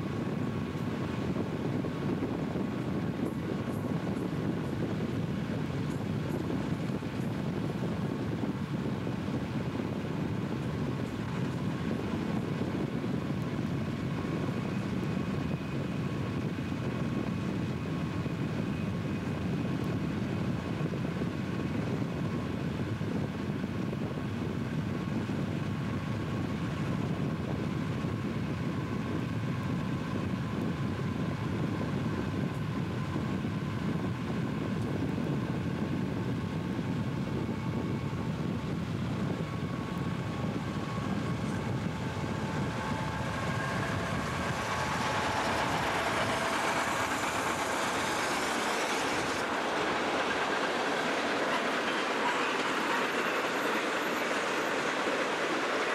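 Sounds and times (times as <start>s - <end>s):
diesel locomotive running: 0.0s - 55.9s
road and wind noise: 0.0s - 55.9s
high whining tones: 39.5s - 55.8s.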